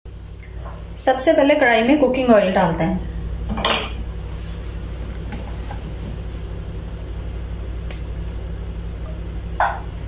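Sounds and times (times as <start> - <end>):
low mechanical hum: 0.1 - 10.0.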